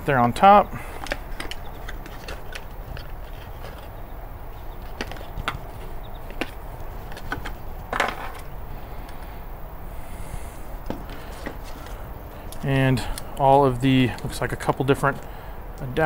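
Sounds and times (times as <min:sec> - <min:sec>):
plastic and metal clicks and knocks: 0:01.0 - 0:03.9
cardboard rustling: 0:01.0 - 0:04.0, 0:04.6 - 0:08.5, 0:10.8 - 0:12.4.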